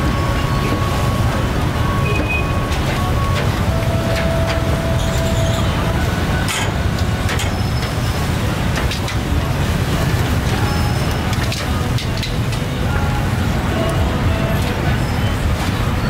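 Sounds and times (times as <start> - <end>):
street traffic rumble: 0.0 - 16.0.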